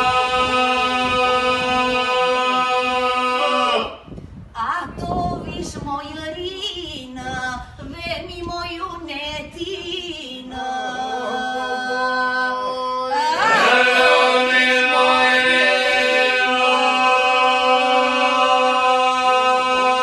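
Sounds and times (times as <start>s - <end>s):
lead voice singing: 0.0s - 4.1s, 9.8s - 20.0s.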